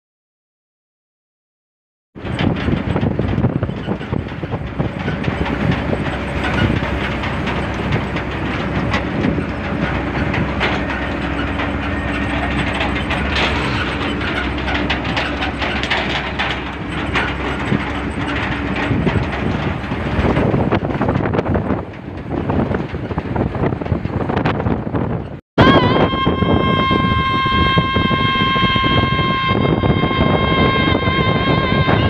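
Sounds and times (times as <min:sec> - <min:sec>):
truck bed rails rattling: 0:02.2 - 0:25.4
truck drive hum: 0:02.2 - 0:32.0
wind and road noise: 0:02.2 - 0:32.0.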